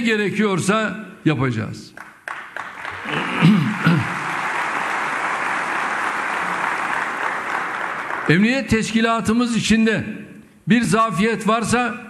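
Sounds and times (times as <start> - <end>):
audience applauding: 2.0 - 8.6.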